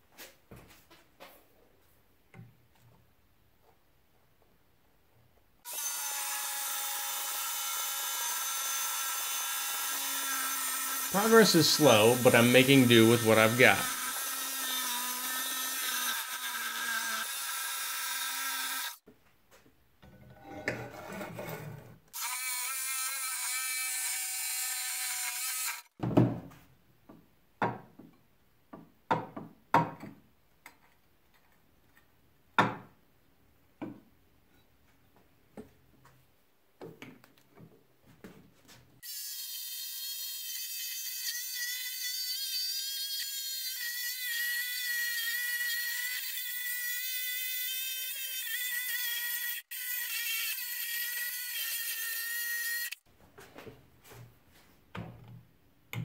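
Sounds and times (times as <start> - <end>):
jigsaw cutting metal sheet: 5.7 - 19.0.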